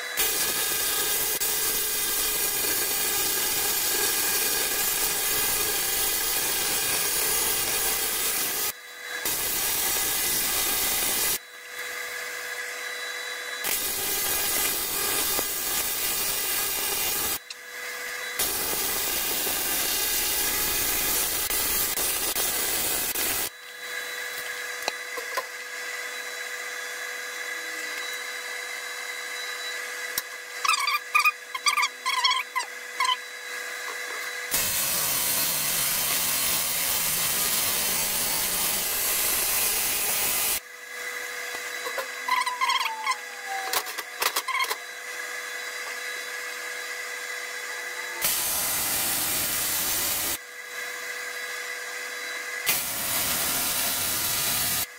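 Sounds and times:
welding arc hissing: 0:00.0 - 0:11.4, 0:13.6 - 0:17.6, 0:18.3 - 0:23.6, 0:34.2 - 0:40.6, 0:48.1 - 0:50.4, 0:52.6 - 0:54.9.

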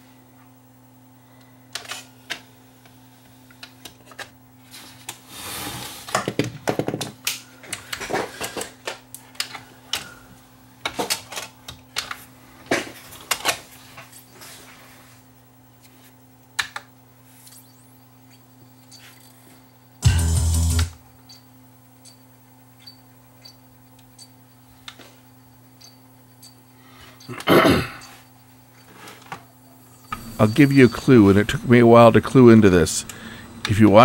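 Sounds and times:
steady low hum: 0:07.2 - 0:34.0
disc mechanism clicking and rattling: 0:10.8 - 0:14.1.

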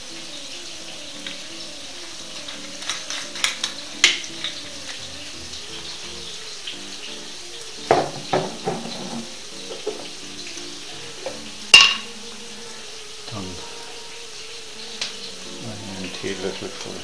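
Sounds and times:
glass jar clinking: 0:02.5 - 0:05.0, 0:11.7 - 0:12.1
jars and dishes knocking: 0:02.8 - 0:05.0, 0:07.9 - 0:10.1, 0:11.2 - 0:12.1.

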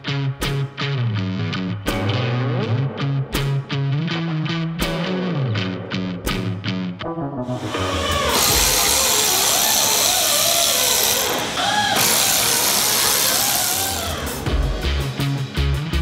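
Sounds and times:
cordless power tool running: 0:07.6 - 0:14.5.

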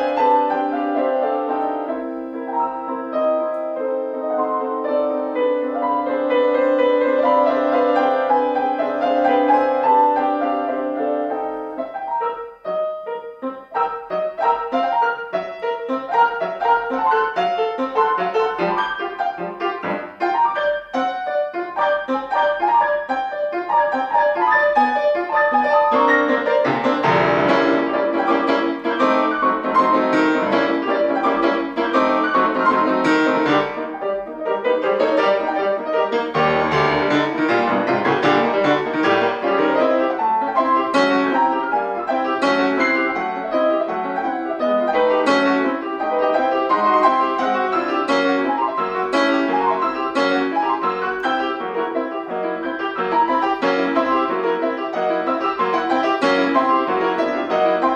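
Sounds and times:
classical piano playing: 0:00.0 - 0:57.9.

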